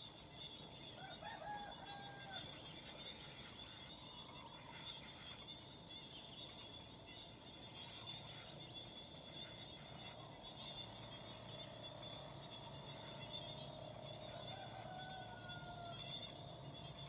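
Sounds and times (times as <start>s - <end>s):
small birds chirping: 0.0s - 17.0s
rooster crowing: 1.0s - 2.6s, 14.3s - 16.2s.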